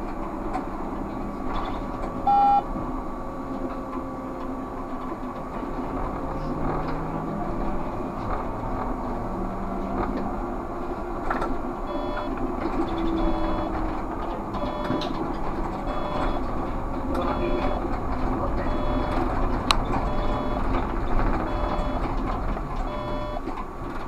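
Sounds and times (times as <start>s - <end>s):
road noise: 0.0s - 24.0s
short electronic beeps: 2.3s - 2.6s, 11.9s - 12.4s, 13.1s - 13.7s, 14.6s - 15.2s, 15.9s - 16.5s, 17.3s - 17.8s, 18.6s - 19.3s, 20.0s - 20.7s, 21.4s - 22.1s, 22.9s - 23.4s.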